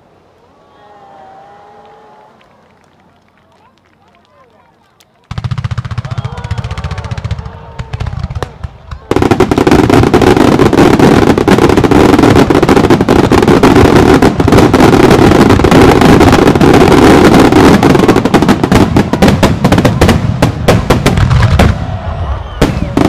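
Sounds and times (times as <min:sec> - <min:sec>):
fireworks launches and bursts: 0:05.2 - 0:23.0.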